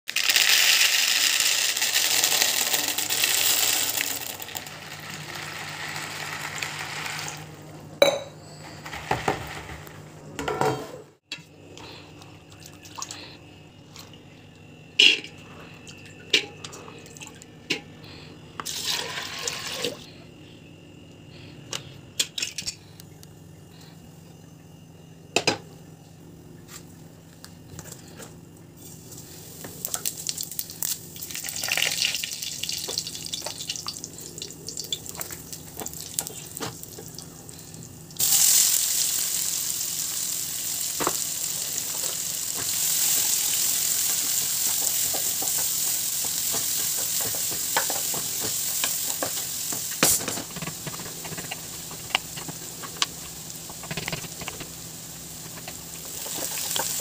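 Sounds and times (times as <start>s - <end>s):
dried beans poured into plastic bowl: 0.1s - 7.4s
pots and utensils knocking: 8.0s - 8.4s.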